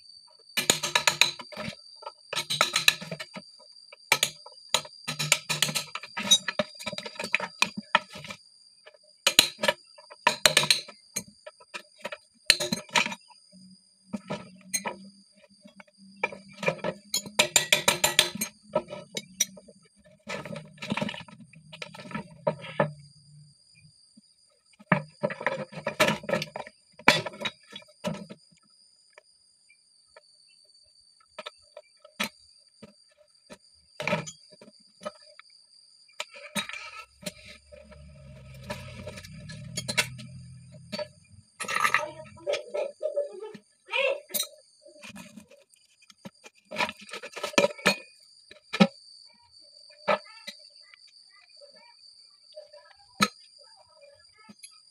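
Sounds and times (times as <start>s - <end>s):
tools and plastic parts clinking: 0.6s - 13.4s, 14.1s - 23.5s, 24.8s - 28.6s, 31.4s - 35.4s, 36.2s - 42.9s, 44.3s - 49.0s.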